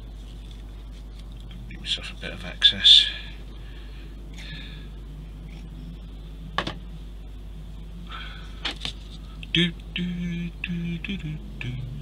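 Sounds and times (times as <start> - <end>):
steady low hum: 0.0 - 12.0
soft breath: 3.0 - 5.1, 8.0 - 8.6.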